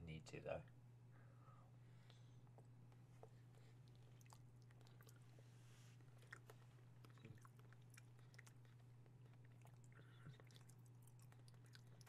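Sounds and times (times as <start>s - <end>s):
steady low hum: 0.0s - 12.0s
man chewing: 2.5s - 12.0s.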